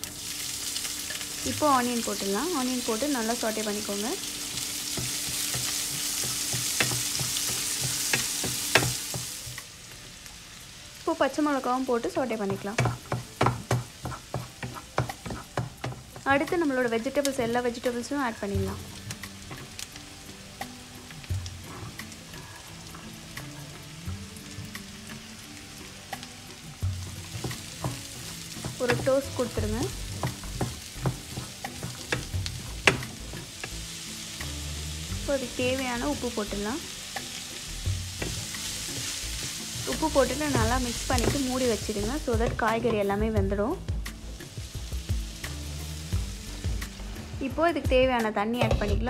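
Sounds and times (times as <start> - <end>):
onions sizzling in hot oil: 0.0 - 47.7
spatula knocking against pan: 12.5 - 16.2.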